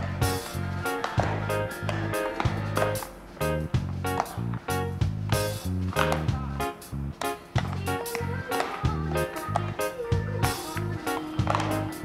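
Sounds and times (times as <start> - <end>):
background music with bass line: 0.0 - 12.0.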